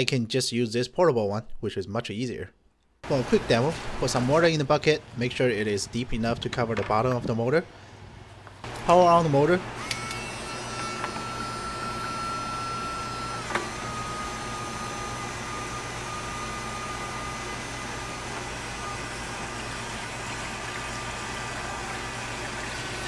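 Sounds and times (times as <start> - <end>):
submersible pump motor whining: 8.0 - 23.0.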